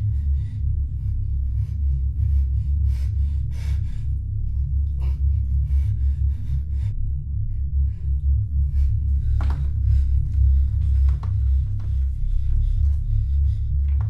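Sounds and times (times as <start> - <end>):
low suspense drone: 0.0 - 14.0.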